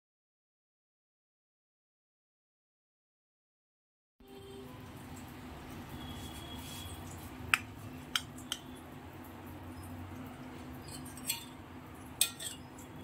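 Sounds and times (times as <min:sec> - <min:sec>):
spatula clinking against pan: 0:10.8 - 0:13.0.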